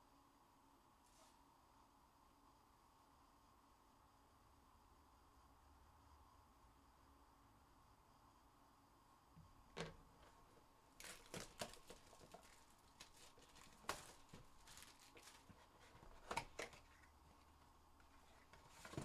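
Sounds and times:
fingers on cardboard rustling: 0:11.0 - 0:19.0.

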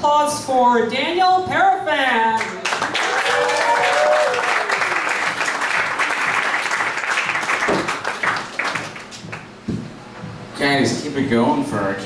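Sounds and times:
audience applauding: 0:02.4 - 0:09.6.

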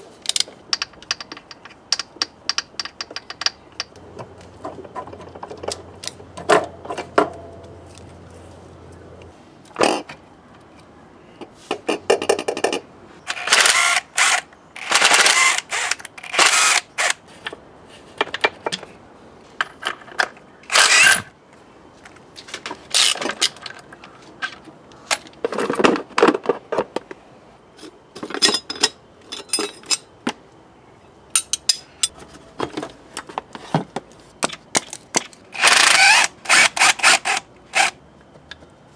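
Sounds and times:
hand tools and metal parts clinking: 0:00.0 - 0:08.6, 0:09.7 - 0:21.3, 0:22.0 - 0:27.1, 0:27.7 - 0:30.4, 0:31.3 - 0:38.6
cordless drill whirring: 0:13.3 - 0:17.1, 0:20.7 - 0:21.2, 0:35.6 - 0:37.9.

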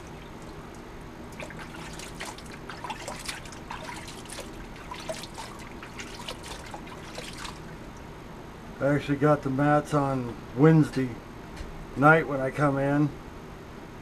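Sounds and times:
water dripping: 0:00.0 - 0:08.1
water trickling and splashing: 0:00.0 - 0:08.1.

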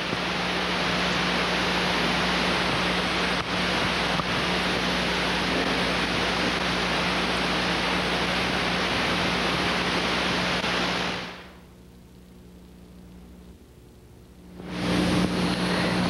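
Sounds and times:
loud rushing hiss: 0:00.0 - 0:11.7, 0:14.5 - 0:16.0
low hum: 0:00.0 - 0:16.0.

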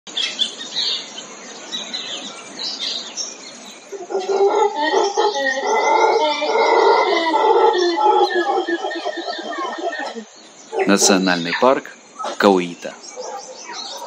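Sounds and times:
birds chirping: 0:00.1 - 0:14.0
chorus of low animal calls: 0:03.5 - 0:14.0.

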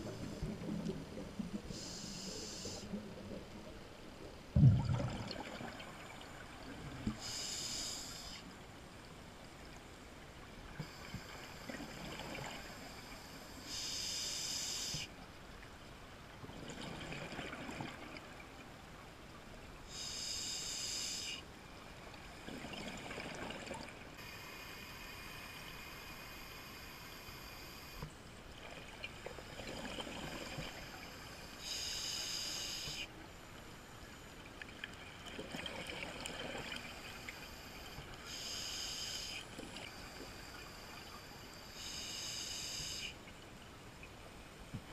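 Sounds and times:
hissing regulator inhalation: 0:01.8 - 0:02.9, 0:31.6 - 0:33.1, 0:38.3 - 0:39.4, 0:41.7 - 0:43.2
rush of exhaled bubbles: 0:04.6 - 0:05.8.

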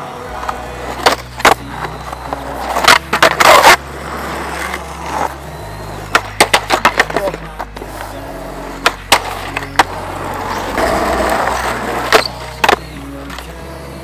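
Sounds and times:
skateboard scraping: 0:00.0 - 0:13.6
skateboard wheels rolling on asphalt: 0:00.0 - 0:13.6
skateboard clacks: 0:00.4 - 0:05.4, 0:06.0 - 0:13.5
skateboard hitting wooden ledge: 0:06.1 - 0:07.4.

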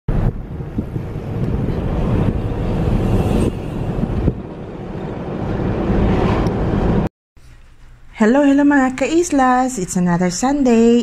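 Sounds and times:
vehicle road and engine noise: 0:00.1 - 0:07.1
wind buffeting microphone: 0:00.1 - 0:07.1.

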